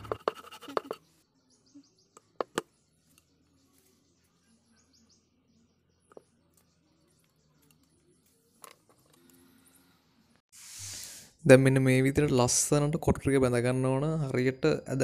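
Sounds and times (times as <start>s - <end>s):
small birds chirping: 0.1s - 10.4s.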